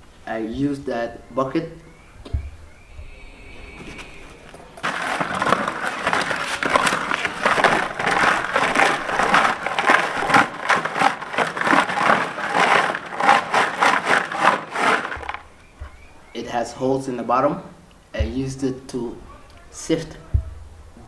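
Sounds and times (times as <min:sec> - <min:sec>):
soil and stones rattling in bucket: 0:03.8 - 0:16.2.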